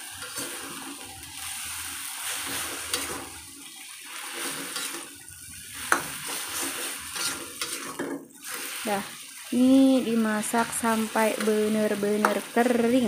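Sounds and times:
metal spatula scraping pan: 0.0 - 3.5, 4.1 - 8.8
mushrooms sizzling in a wok: 0.0 - 13.0.

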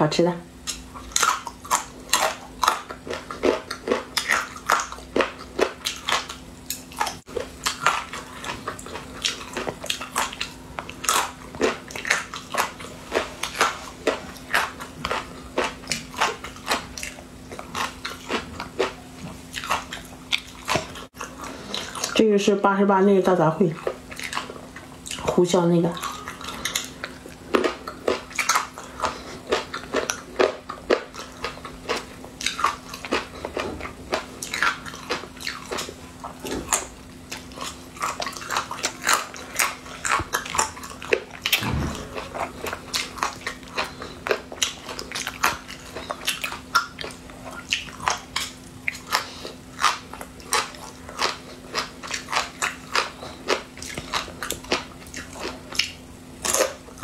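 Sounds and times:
person chewing crunchy food: 0.5 - 22.3, 23.6 - 57.0.

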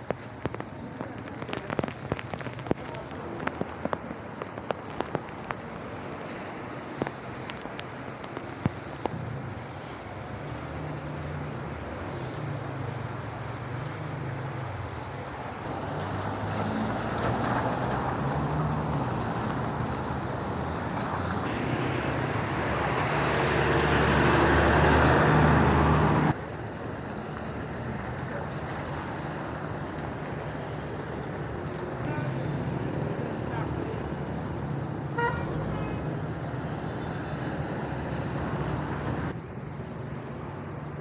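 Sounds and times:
bus passing close by: 9.2 - 41.0.

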